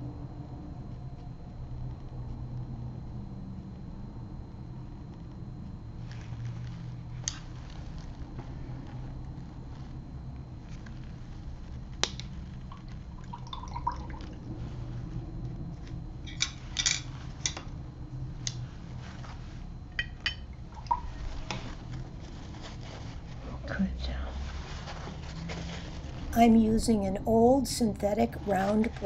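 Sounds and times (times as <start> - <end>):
steady low hum: 0.0 - 29.0
small water drips: 12.0 - 14.5, 20.0 - 21.4.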